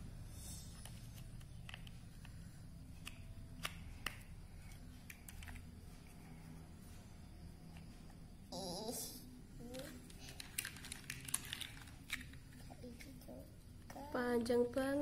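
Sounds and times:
plastic blocks clicking: 0:09.6 - 0:13.1.

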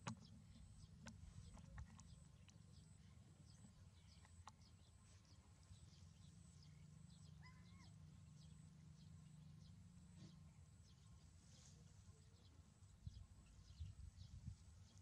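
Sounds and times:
faint high chirps: 0:00.3 - 0:10.4.

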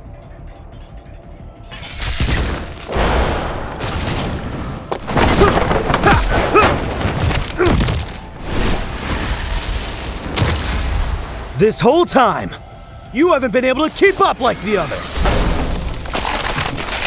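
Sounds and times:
booms and thuds: 0:02.3 - 0:11.5.

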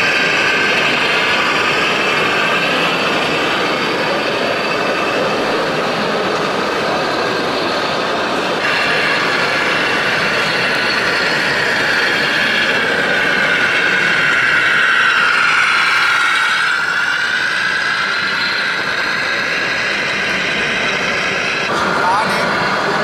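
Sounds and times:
model truck mechanical whine: 0:00.0 - 0:23.0.

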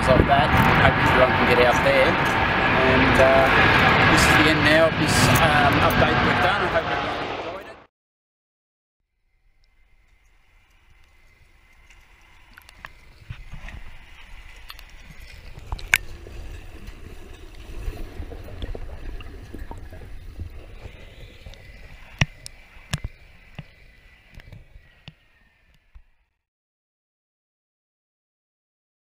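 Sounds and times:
sea water sloshing and splashing: 0:10.4 - 0:24.4.

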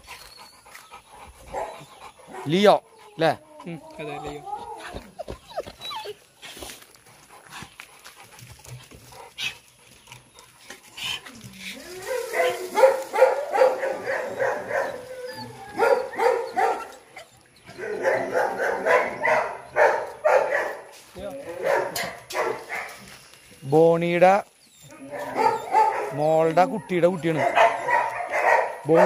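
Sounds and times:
dogs barking: 0:01.4 - 0:02.7, 0:12.0 - 0:23.1, 0:24.9 - 0:29.0.

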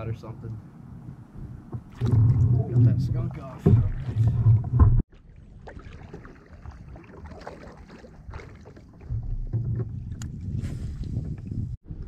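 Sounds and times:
wind rumble on microphone: 0:00.0 - 0:05.0, 0:07.8 - 0:12.0
paddle splashing in water: 0:01.8 - 0:11.2.

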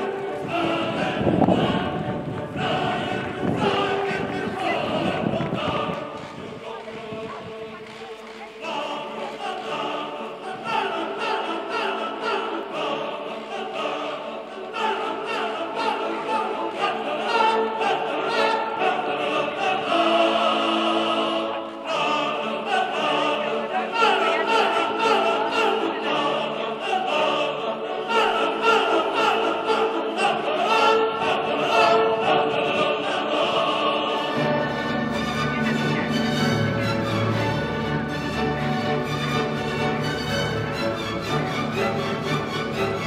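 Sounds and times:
choir singing operatically: 0:00.0 - 0:43.0
orchestral chords: 0:00.0 - 0:43.0.

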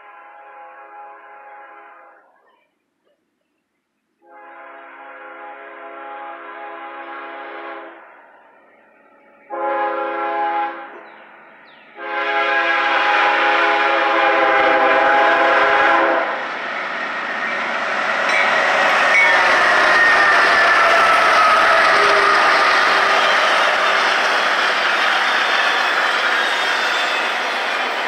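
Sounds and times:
locomotive air horn blasts: 0:00.0 - 0:02.2, 0:04.2 - 0:08.0, 0:09.5 - 0:10.9, 0:12.0 - 0:16.4
train wheels rumbling on rails: 0:10.8 - 0:28.0.

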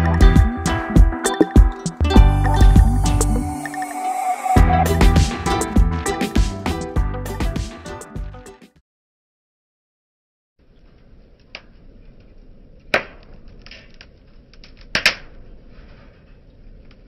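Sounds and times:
fire crackling and popping: 0:11.4 - 0:17.0.

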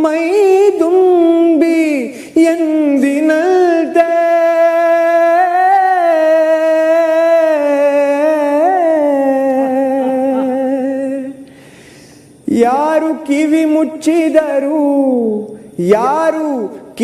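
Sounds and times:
man singing a long note: 0:00.0 - 0:11.4.

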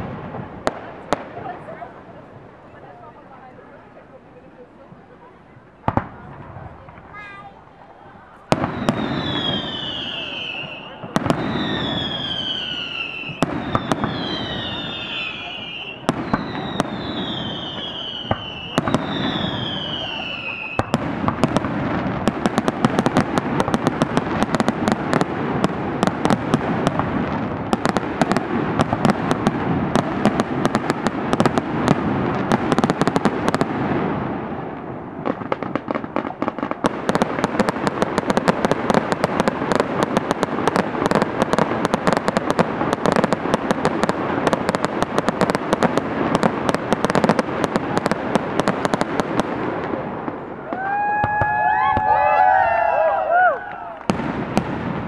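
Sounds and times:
fireworks crackling: 0:00.0 - 0:55.0
firework whistles: 0:07.9 - 0:21.1.

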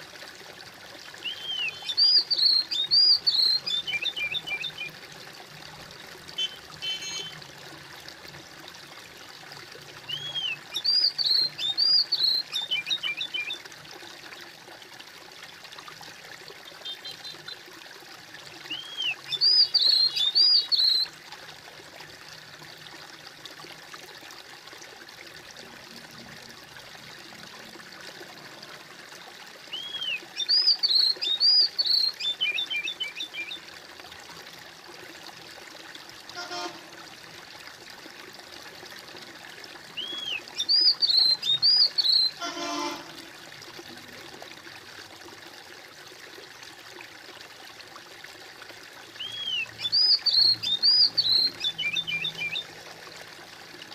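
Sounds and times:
water trickling: 0:00.0 - 0:53.9
songbird whistling and trilling: 0:01.2 - 0:05.0, 0:06.4 - 0:07.4, 0:10.1 - 0:13.6, 0:16.8 - 0:17.6, 0:18.7 - 0:21.1, 0:29.7 - 0:33.6, 0:40.0 - 0:42.4, 0:49.2 - 0:52.7.

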